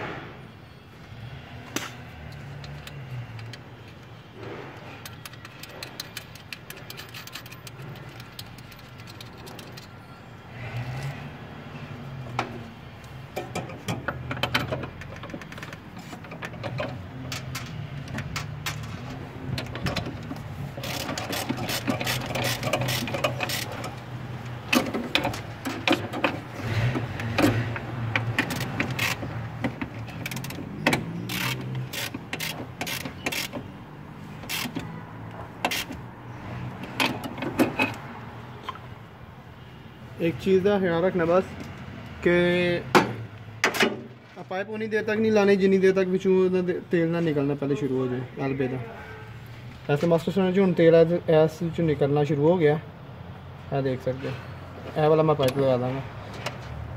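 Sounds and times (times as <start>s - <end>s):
ratchet wrench clicking: 5.0s - 9.9s, 20.8s - 24.0s, 28.2s - 29.3s, 30.0s - 33.7s, 34.4s - 34.9s.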